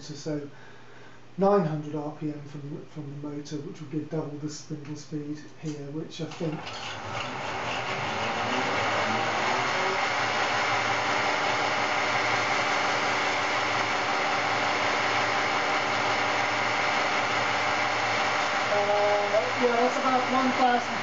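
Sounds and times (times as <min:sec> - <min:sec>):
milling machine spindle humming: 0:06.6 - 0:21.0.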